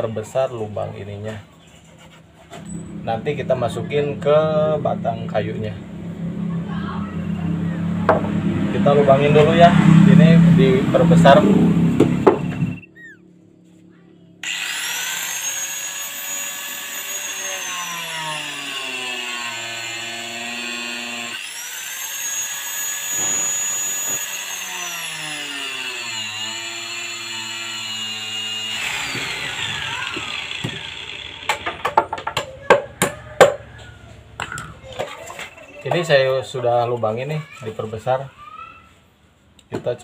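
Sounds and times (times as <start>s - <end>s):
angle grinder whining: 7.2s - 13.4s, 14.4s - 32.5s.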